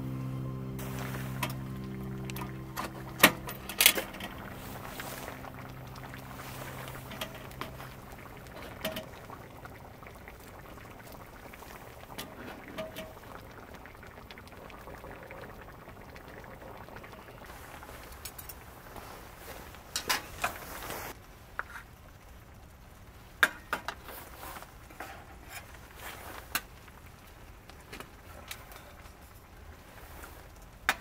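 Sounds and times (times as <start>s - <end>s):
low hum: 0.0s - 17.7s
liquid bubbling at a boil: 0.8s - 31.0s.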